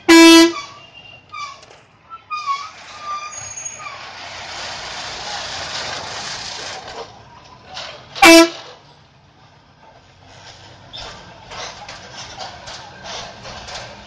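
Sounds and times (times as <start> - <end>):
vehicle horn blast: 0.0 - 1.0, 8.2 - 8.6
road and wind noise: 0.0 - 14.0.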